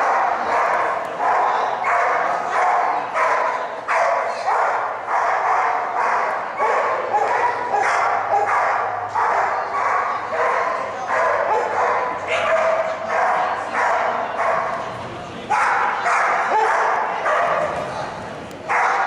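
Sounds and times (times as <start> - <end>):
dog barking: 0.0 - 14.8, 15.5 - 17.7, 18.7 - 19.0.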